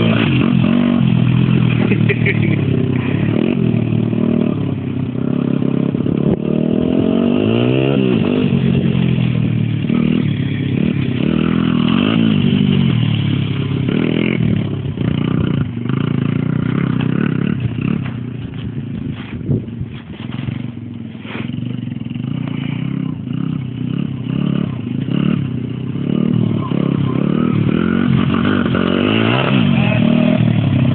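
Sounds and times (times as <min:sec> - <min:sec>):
dirt bike engine revving: 0:00.0 - 0:30.9.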